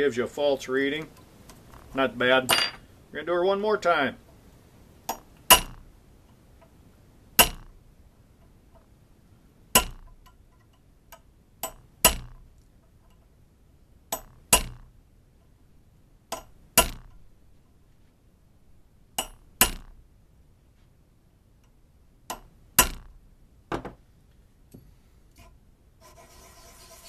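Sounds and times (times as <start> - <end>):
hammer striking metal punch: 5.1 - 5.8, 7.4 - 7.7, 9.8 - 10.1, 11.6 - 12.4, 14.1 - 14.9, 16.3 - 17.2, 19.2 - 20.0, 22.3 - 23.2.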